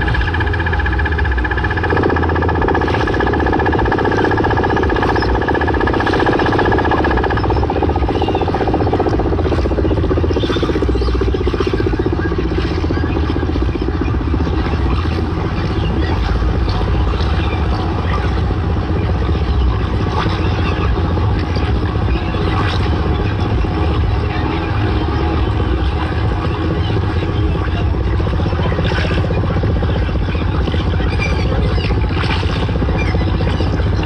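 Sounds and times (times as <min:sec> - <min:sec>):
falling synth sweep: 0:00.0 - 0:17.3
bass-heavy electronic dance music: 0:00.0 - 0:34.0.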